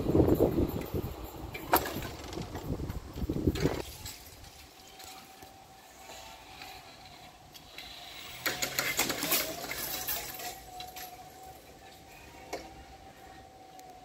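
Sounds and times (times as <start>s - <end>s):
metal barrier skirts jangling: 0.0s - 5.6s, 7.9s - 12.0s.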